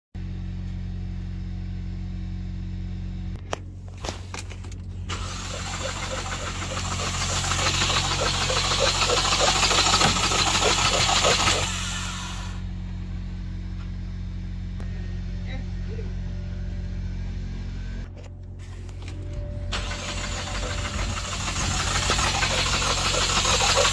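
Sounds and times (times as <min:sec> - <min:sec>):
starter cranking engine: 0:05.0 - 0:12.6, 0:19.7 - 0:23.9.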